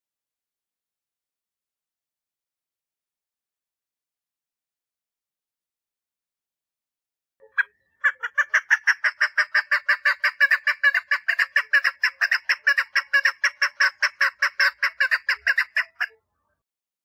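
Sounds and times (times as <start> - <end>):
partridge calling: 7.4 - 16.1.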